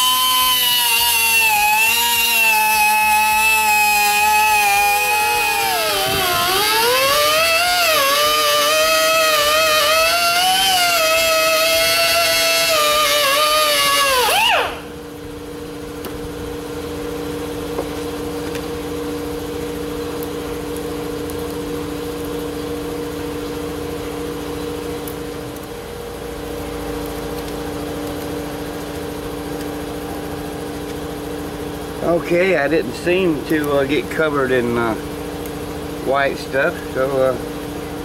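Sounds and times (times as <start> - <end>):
grinder whine winding down: 0.0 - 16.6
steady machine hum: 0.0 - 38.0.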